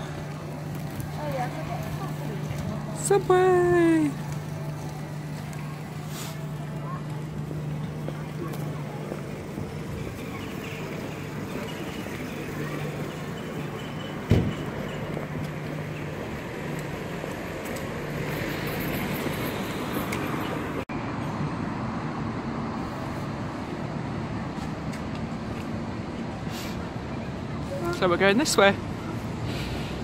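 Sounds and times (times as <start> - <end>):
engine hum of passing vehicles: 0.0 - 30.0
road noise: 0.0 - 30.0
loud thump: 14.3 - 14.6.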